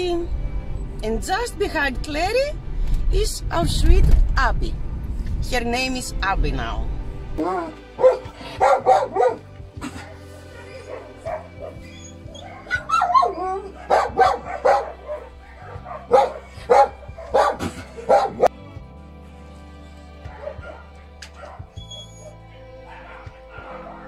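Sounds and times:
background music: 0.0 - 24.0
dog yipping and barking: 7.4 - 9.4, 10.0 - 18.5, 20.3 - 24.0
dog whining: 7.4 - 18.5, 21.4 - 24.0.

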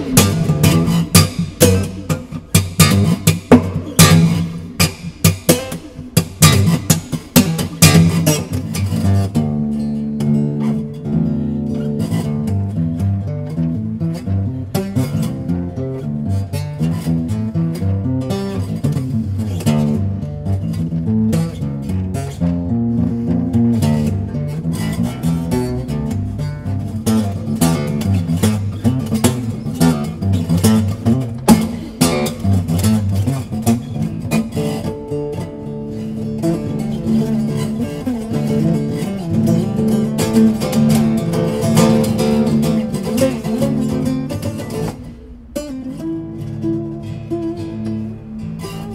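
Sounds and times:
acoustic bass guitar strummed: 0.0 - 48.9.

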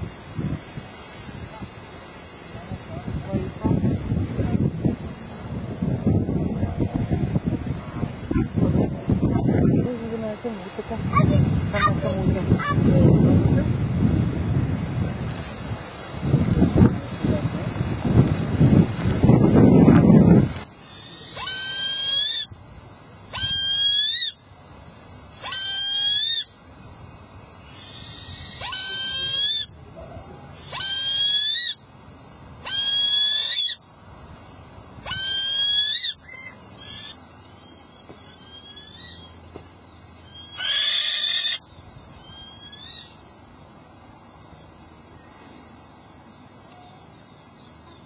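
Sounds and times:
hawk screaming call: 20.8 - 22.5, 23.3 - 24.4, 25.4 - 26.5, 27.7 - 29.7, 30.6 - 31.8, 32.6 - 33.8, 35.0 - 37.2, 40.3 - 41.6.

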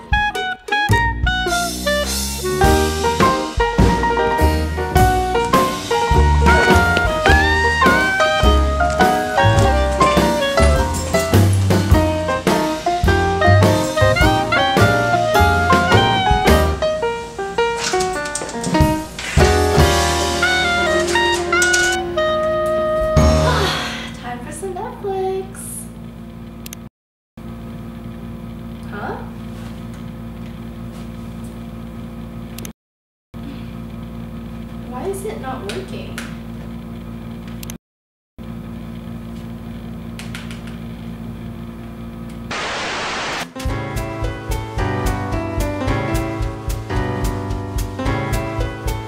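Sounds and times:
instrumental music with beat: 0.0 - 17.2, 18.8 - 23.4, 43.6 - 49.0
heavy drum hits: 2.7 - 15.1
tv static hiss: 42.5 - 43.6.

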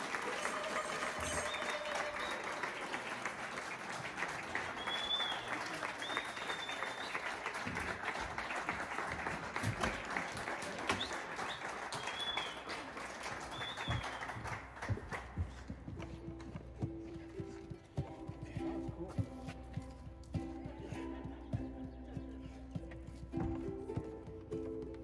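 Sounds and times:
audience applauding: 0.0 - 15.8.

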